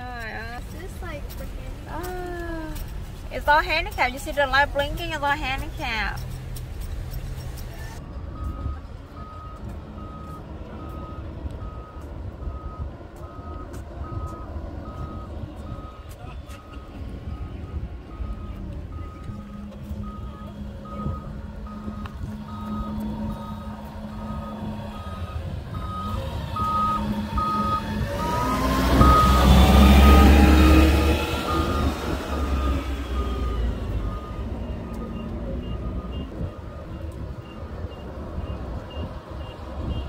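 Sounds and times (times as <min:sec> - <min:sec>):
heavy vehicle passing: 0:00.0 - 0:40.0
electronic warning beeps: 0:08.0 - 0:40.0
low rumble: 0:16.8 - 0:37.5.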